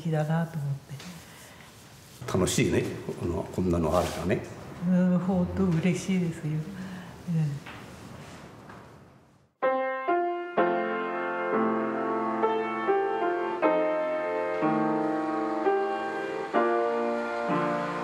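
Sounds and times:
upright piano melody: 9.6 - 18.0.

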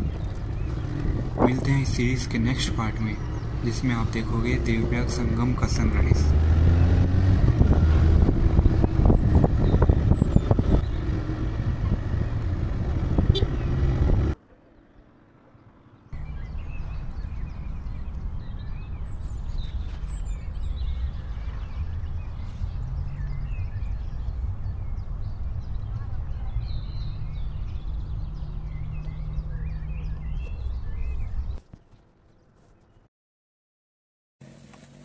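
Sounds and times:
wind rumble on microphone: 0.0 - 3.7, 5.0 - 14.4, 16.2 - 31.6
bird chirps: 8.6 - 12.2, 16.0 - 33.1.

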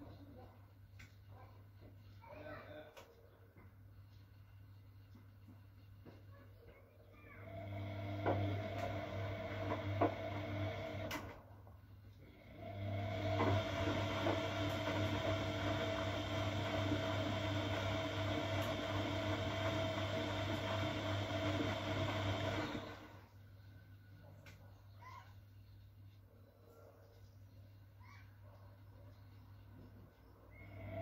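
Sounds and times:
washing machine drum turning: 7.9 - 11.1, 12.9 - 22.8.

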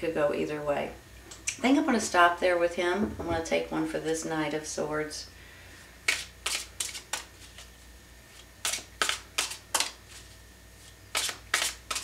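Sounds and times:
cards being shuffled: 6.1 - 7.7, 8.3 - 12.0.

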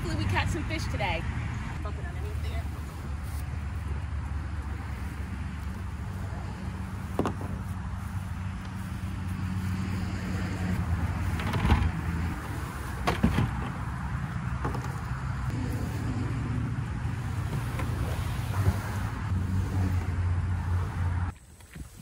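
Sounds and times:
road traffic drone: 0.0 - 22.0.

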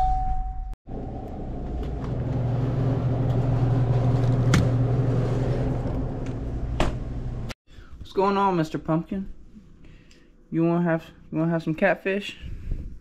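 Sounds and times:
drinks cooler hum: 0.9 - 7.5.

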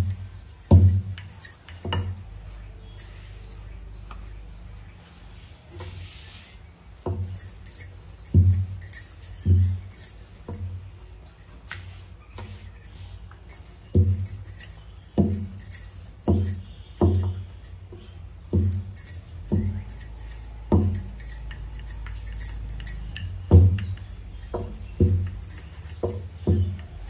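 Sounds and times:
bangles jingling: 0.0 - 27.0.

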